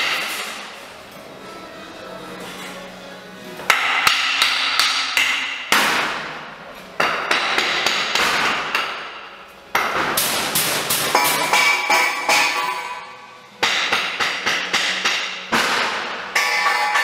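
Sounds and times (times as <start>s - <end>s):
loud banging and clattering: 3.7s - 6.4s, 7.0s - 17.0s.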